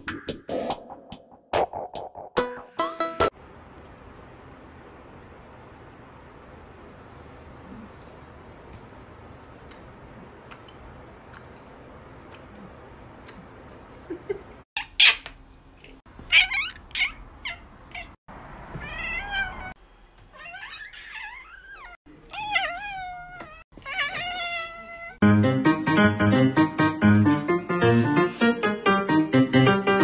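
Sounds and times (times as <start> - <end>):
cat meowing: 16.3 - 18.2, 18.8 - 19.7, 20.4 - 25.2.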